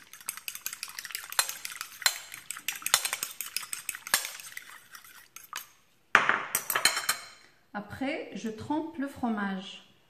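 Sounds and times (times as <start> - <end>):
fork beating egg on plate: 0.0 - 5.9.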